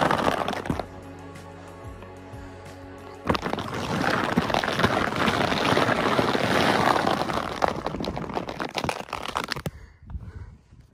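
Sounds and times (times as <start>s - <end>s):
sled scraping over crusted snow: 0.0s - 0.9s, 3.3s - 9.7s.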